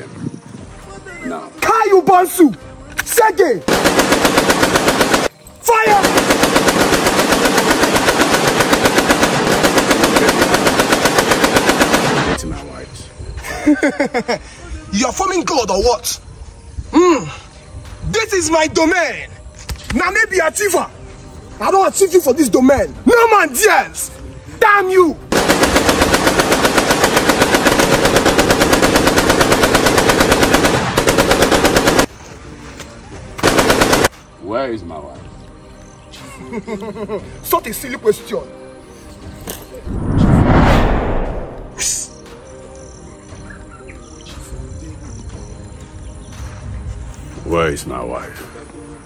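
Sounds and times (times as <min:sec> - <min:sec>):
automatic gunfire: 0:03.7 - 0:12.4, 0:25.3 - 0:32.1, 0:33.4 - 0:34.1.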